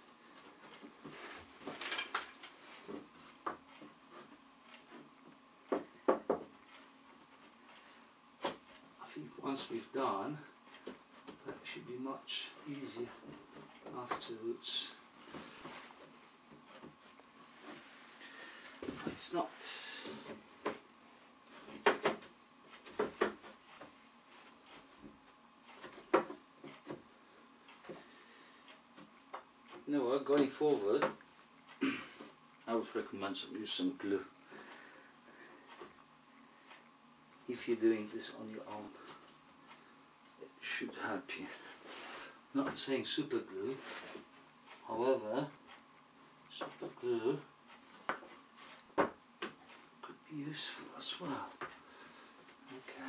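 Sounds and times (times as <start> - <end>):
wooden panels knocking: 5.7 - 6.5.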